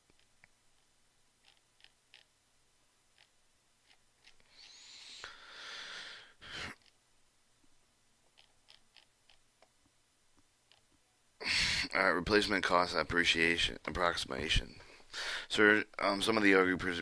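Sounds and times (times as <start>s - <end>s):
computer mouse scrolling clicks: 1.4s - 2.3s, 8.3s - 9.4s
person breathing out: 4.5s - 6.8s, 11.4s - 11.9s, 15.1s - 15.5s.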